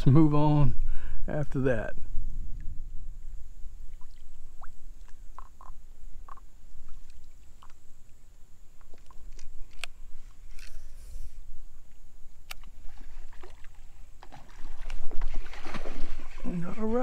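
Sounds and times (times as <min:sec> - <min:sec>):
wind rumbling on microphone: 0:00.0 - 0:08.0.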